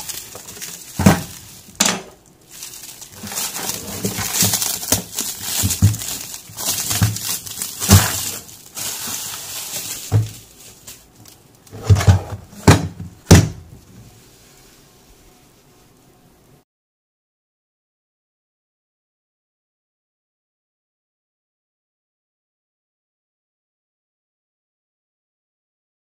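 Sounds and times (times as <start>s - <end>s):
plastic shrink-wrap crinkling: 0.0s - 14.4s
plastic case knocks: 11.8s - 13.7s.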